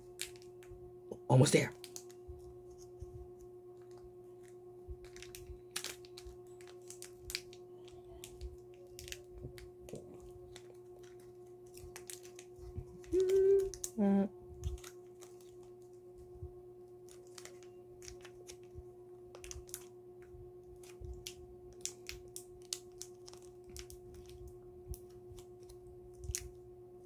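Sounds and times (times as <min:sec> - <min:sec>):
plastic wrapper crinkling: 0:00.0 - 0:00.7, 0:01.7 - 0:03.0, 0:03.8 - 0:14.0, 0:14.6 - 0:16.0, 0:16.9 - 0:20.0, 0:20.6 - 0:26.6
steady low hum: 0:00.0 - 0:27.0
short voice sounds: 0:13.1 - 0:14.3.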